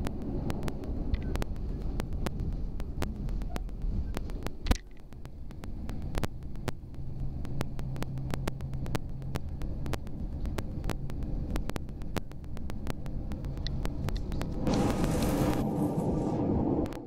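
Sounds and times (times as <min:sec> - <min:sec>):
rapid irregular clicking: 0:00.0 - 0:17.0
train rumbling at speed: 0:00.0 - 0:17.0.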